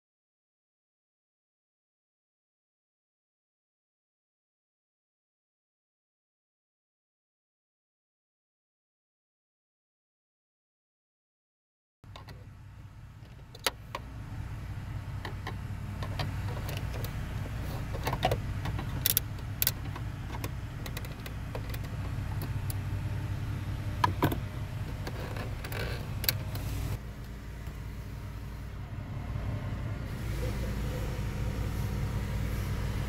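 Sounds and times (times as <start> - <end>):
steady low hum: 12.1 - 33.0.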